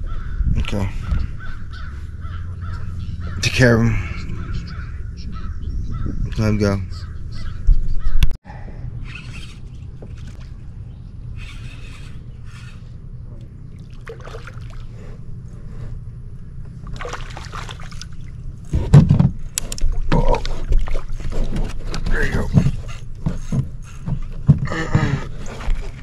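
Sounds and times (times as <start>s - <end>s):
low steady rumble: 0.0s - 26.0s
water splashing against hull: 13.7s - 15.1s, 16.8s - 24.5s
knocks and handling noise: 18.7s - 24.7s.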